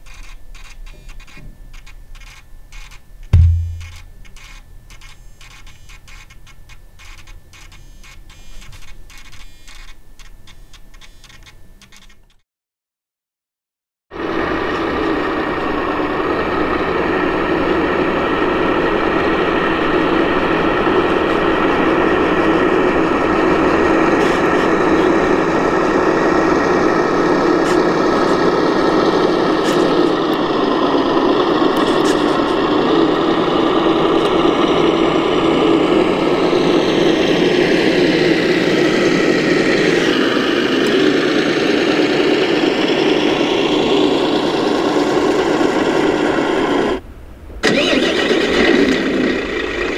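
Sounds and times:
high whine: 3.3 - 4.9
simulated diesel truck engine: 14.2 - 49.9.

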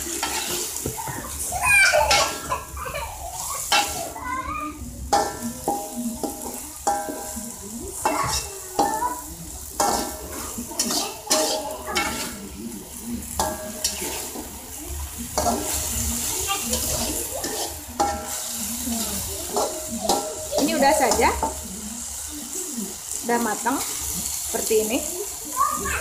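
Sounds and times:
food sizzling: 0.0 - 26.0
metal ladle knocking against wok: 18.0 - 18.4.

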